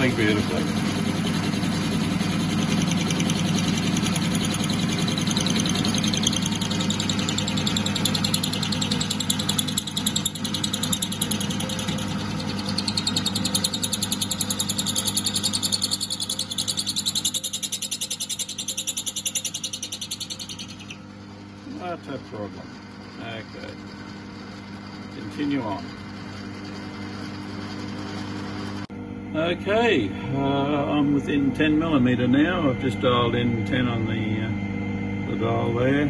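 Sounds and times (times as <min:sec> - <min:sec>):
lathe motor and gear hum: 0:00.0 - 0:36.0
cutter chattering in metal: 0:02.6 - 0:21.0.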